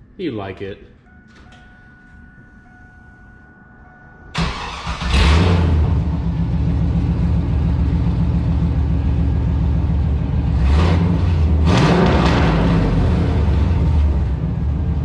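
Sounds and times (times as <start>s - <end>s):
car engine starting and idling: 4.3s - 15.0s
car engine revving: 4.4s - 15.0s.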